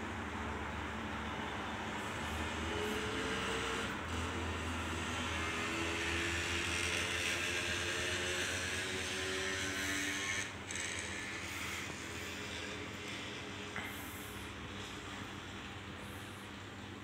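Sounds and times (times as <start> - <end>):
aquarium equipment hum: 0.0 - 17.0.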